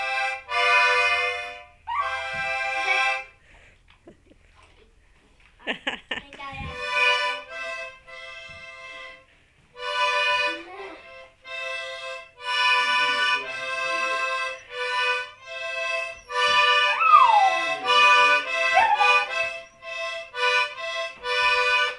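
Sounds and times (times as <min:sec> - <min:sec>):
accordion chords: 0:00.0 - 0:03.5, 0:06.5 - 0:21.9
dog howling: 0:01.9 - 0:02.2, 0:16.3 - 0:19.6.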